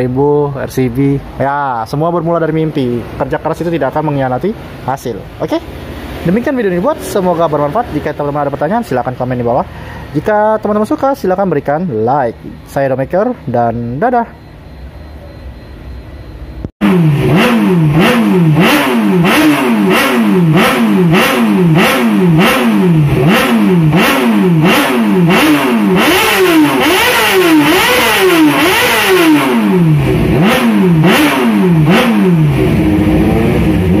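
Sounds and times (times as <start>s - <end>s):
motorcycle engine revving: 2.8s - 9.8s, 16.7s - 34.0s.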